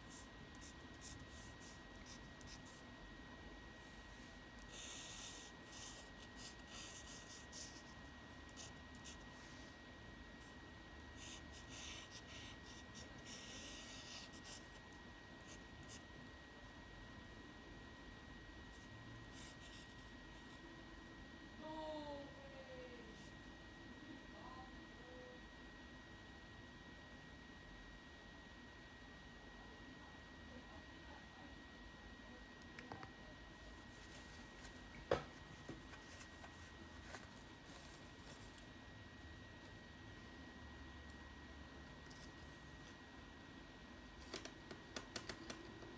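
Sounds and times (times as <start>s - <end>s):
pencil scratching on paper: 0.0s - 2.8s, 4.6s - 9.6s, 11.2s - 14.8s
faint high whine: 0.0s - 44.2s
small clicks and taps: 44.2s - 45.8s.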